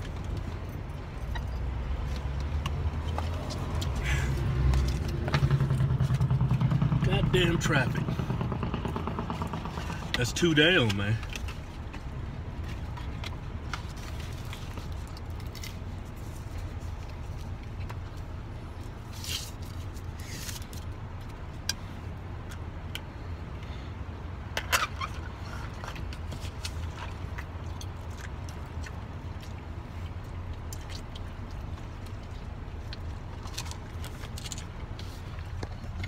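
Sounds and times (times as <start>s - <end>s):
engine idling low rumble: 0.0s - 36.0s
rustles and clicks: 8.1s - 21.4s.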